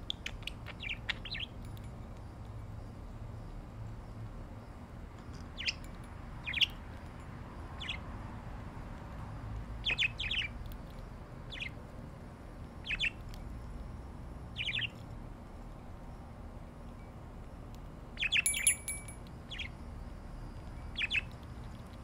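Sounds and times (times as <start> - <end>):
budgerigars chirping: 0.2 - 1.6, 5.6 - 5.8, 6.4 - 6.8, 7.8 - 8.0, 9.8 - 10.6, 11.5 - 11.8, 12.8 - 13.2, 14.6 - 15.0, 18.2 - 18.7, 19.5 - 19.8, 20.9 - 21.3.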